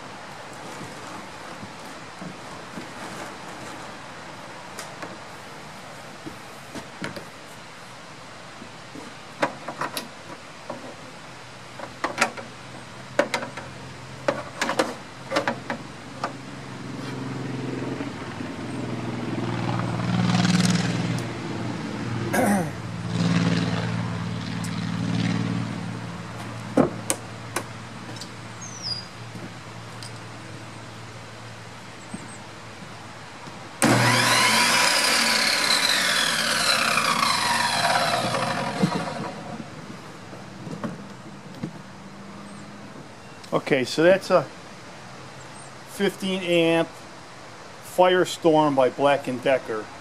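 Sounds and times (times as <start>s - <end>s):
motor vehicle passing: 16.8s - 28.8s, 33.8s - 40.0s.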